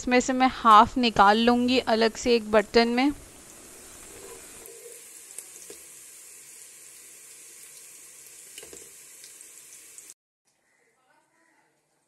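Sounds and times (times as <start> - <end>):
hot oil sizzling: 0.6 - 10.2.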